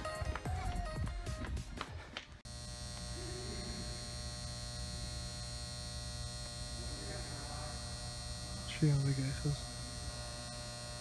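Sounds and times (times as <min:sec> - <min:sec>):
electrical buzzing hum: 0:02.4 - 0:11.0.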